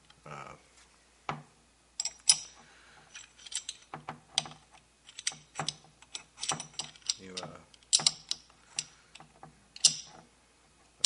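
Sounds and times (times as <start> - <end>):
rifle bolt metal clicks: 9.8 - 10.1.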